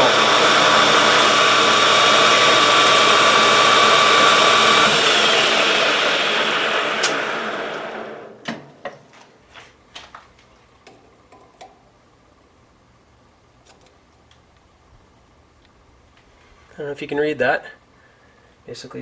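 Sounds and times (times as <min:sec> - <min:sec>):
cutting tool tones: 0:00.0 - 0:08.1
metal lathe running: 0:00.0 - 0:08.3.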